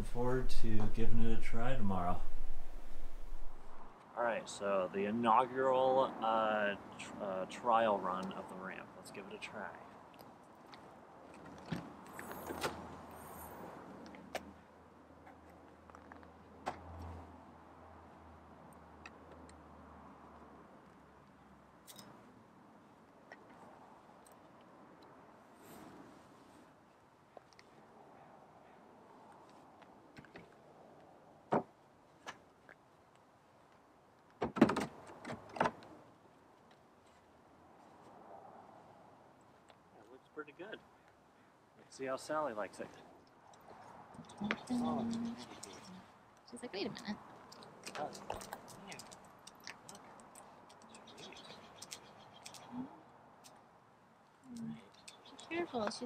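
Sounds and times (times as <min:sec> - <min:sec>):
low steady hum: 0:00.0 - 0:03.9
wooden ramp knocking and clunking: 0:34.4 - 0:35.8.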